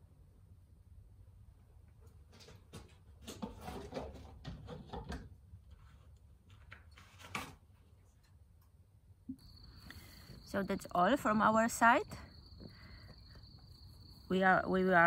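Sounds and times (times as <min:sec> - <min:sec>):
knocks and clatter: 0:02.3 - 0:05.4.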